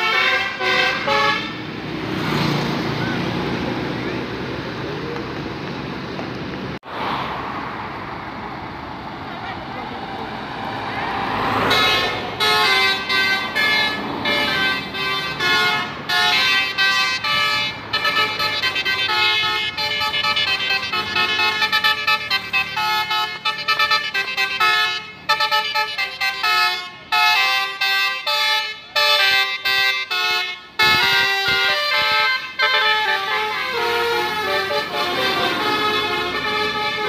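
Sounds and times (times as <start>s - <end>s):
multi-tone bus horn melody: 0.0s - 2.5s, 11.3s - 37.0s.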